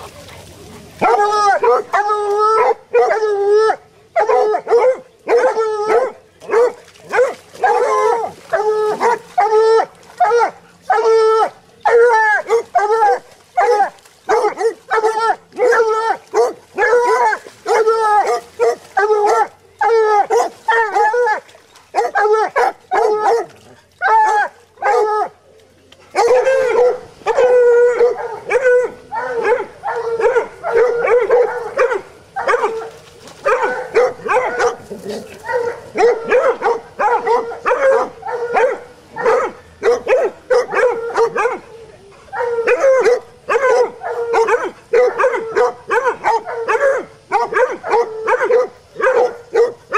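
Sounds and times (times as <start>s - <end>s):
hound puppies baying: 0.0s - 25.4s, 26.1s - 49.9s.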